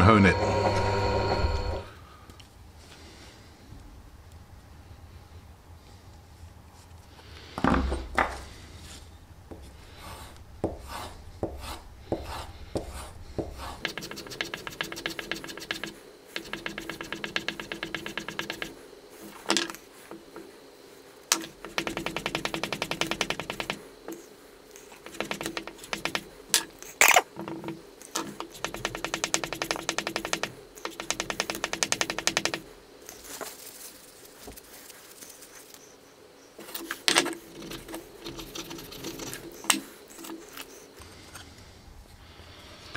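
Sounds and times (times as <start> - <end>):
chisel stropping rapid ticking: 10.8 - 18.8, 21.3 - 23.8, 25.0 - 26.3, 28.3 - 32.7, 37.5 - 40.4
handling knocks and clicks: 21.3 - 24.2, 25.0 - 33.6, 36.6 - 40.7.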